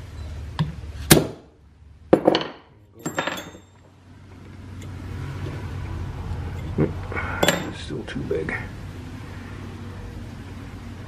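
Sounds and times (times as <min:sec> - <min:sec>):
metal parts clinking: 0:02.2 - 0:03.9, 0:07.4 - 0:07.8.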